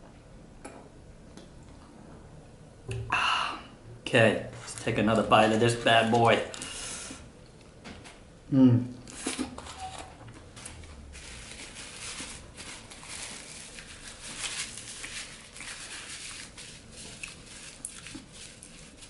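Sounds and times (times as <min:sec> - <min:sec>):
paper napkin rustling: 0:10.6 - 0:19.0.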